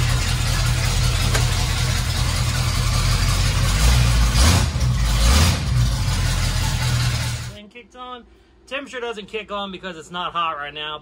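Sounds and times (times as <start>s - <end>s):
engine idling without exhaust: 0.0s - 7.6s.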